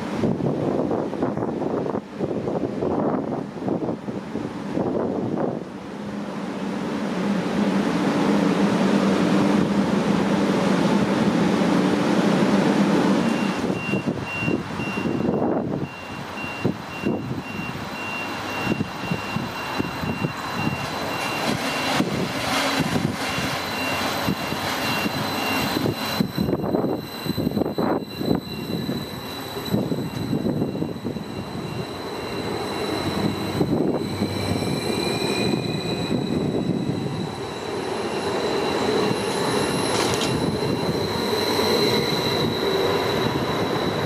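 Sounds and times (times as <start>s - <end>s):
train low drone: 0.0s - 44.0s
high beep: 13.2s - 22.1s, 23.3s - 44.0s
wheels clacking over rail joints: 36.6s - 44.0s.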